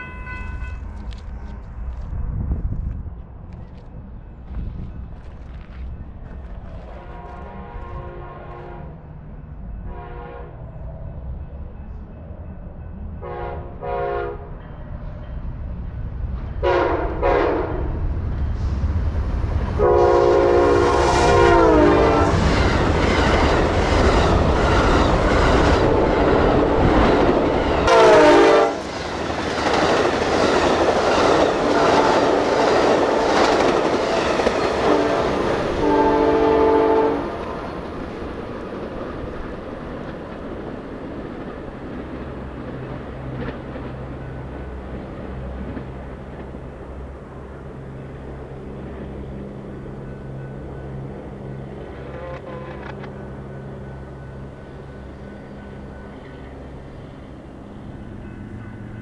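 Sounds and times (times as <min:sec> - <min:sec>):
train cars rumbling on rails: 0:00.0 - 0:59.0
train horn blasts: 0:06.9 - 0:09.0, 0:09.8 - 0:10.7, 0:13.2 - 0:14.6, 0:16.6 - 0:18.0, 0:19.8 - 0:22.5, 0:27.8 - 0:28.8, 0:31.6 - 0:33.8, 0:34.7 - 0:37.7, 0:52.1 - 0:53.1.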